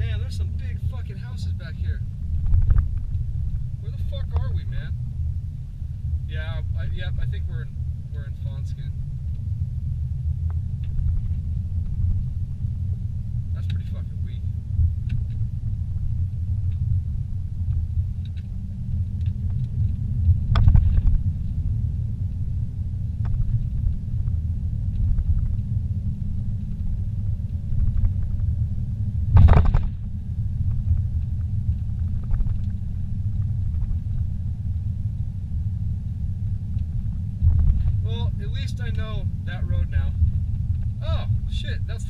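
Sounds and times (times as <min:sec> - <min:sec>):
vehicle rumbling on dirt road: 0:00.0 - 0:42.0
loud knocks in vehicle: 0:29.3 - 0:30.0.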